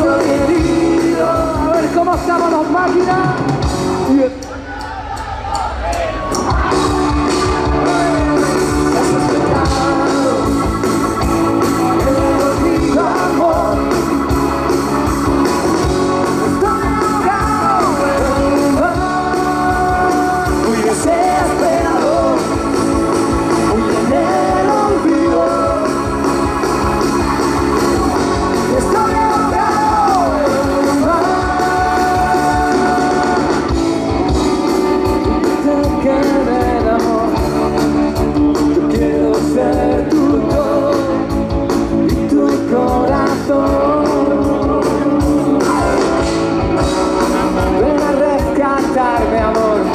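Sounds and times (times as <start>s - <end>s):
live rock band playing: 0.0s - 49.9s.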